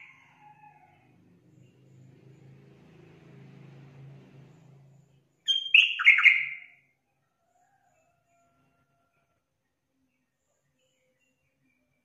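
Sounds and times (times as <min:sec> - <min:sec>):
bird chattering calls: 0:05.5 - 0:06.7.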